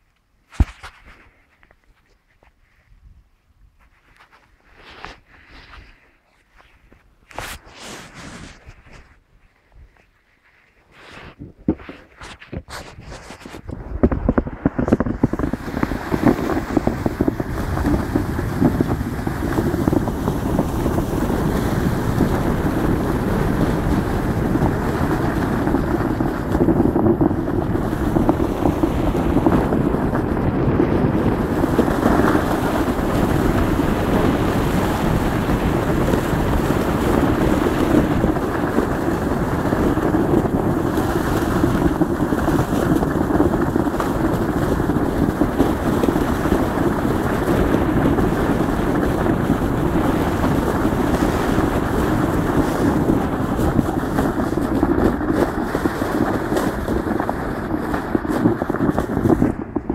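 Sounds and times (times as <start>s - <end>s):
wind on microphone: 0.0s - 59.9s
sled scraping over snow: 3.9s - 9.2s, 10.0s - 59.9s.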